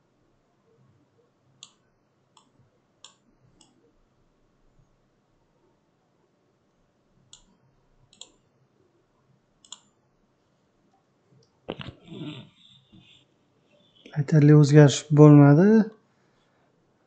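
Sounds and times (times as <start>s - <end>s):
computer mouse clicking: 7.3s - 7.5s, 8.1s - 8.4s, 9.6s - 9.9s.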